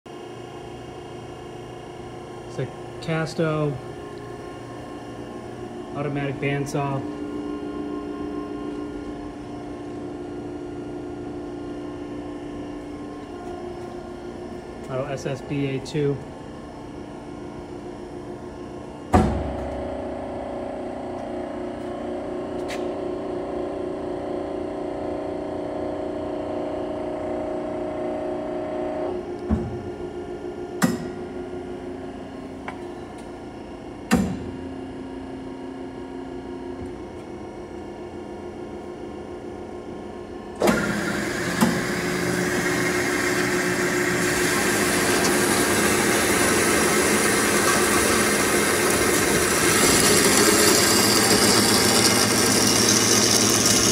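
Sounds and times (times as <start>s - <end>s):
band saw humming: 40.6s - 53.9s.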